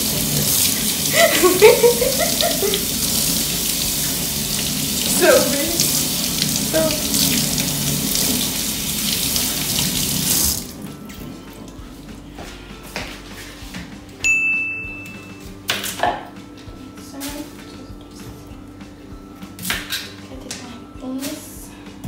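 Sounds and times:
faucet water splashing into steel sink: 0.0 - 10.8.

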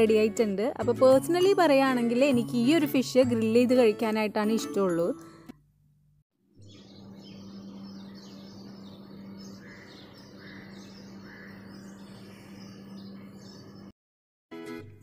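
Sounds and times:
small birds chirping: 6.5 - 13.9.

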